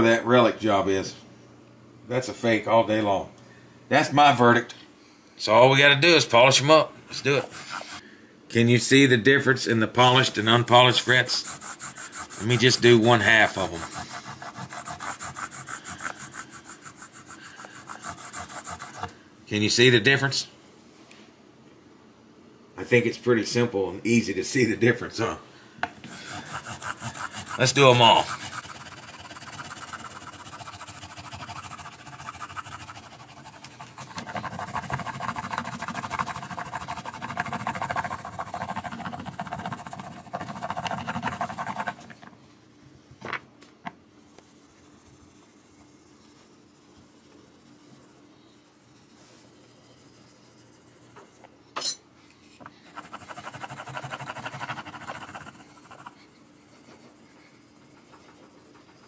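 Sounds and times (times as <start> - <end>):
rubbing along guitar fretboard: 11.0 - 19.0, 26.2 - 42.0.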